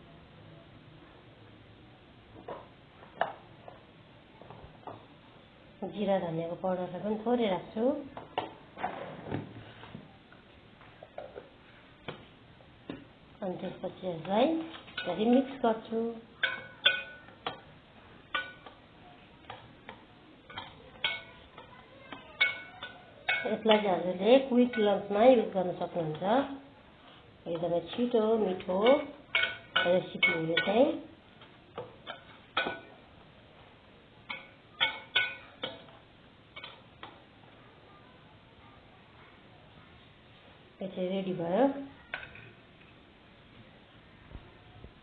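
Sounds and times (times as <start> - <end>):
spoon clinking against metal bowl: 16.4 - 17.7, 18.3 - 18.8, 20.5 - 21.7, 22.4 - 24.0, 28.8 - 30.8, 34.3 - 36.0.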